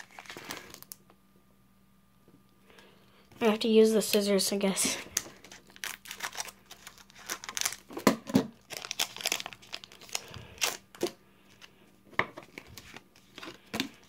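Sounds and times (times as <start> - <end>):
foil wrapper crinkling and tearing: 0.0 - 1.0, 5.0 - 11.8, 12.4 - 14.0.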